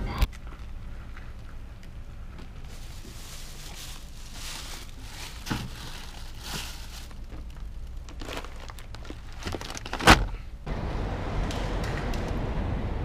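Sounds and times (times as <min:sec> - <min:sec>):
rustling bags and cardboard: 0:02.3 - 0:10.6.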